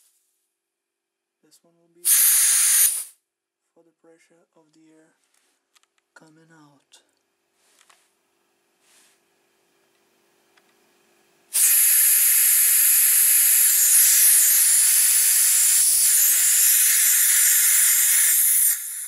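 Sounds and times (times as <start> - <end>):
compressed air hissing: 2.0 - 3.2, 11.5 - 19.0.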